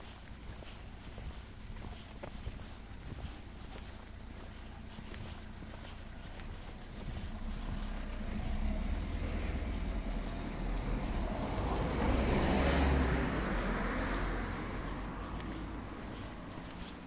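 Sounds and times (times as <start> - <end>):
car passing: 0.0 - 17.0.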